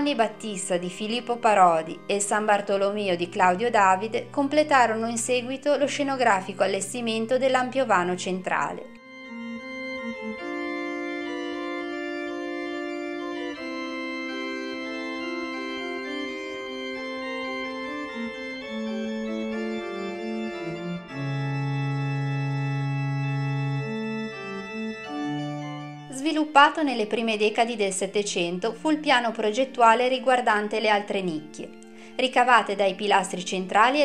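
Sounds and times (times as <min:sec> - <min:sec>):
organ playing slow chords: 0:07.8 - 0:27.8, 0:30.8 - 0:34.0.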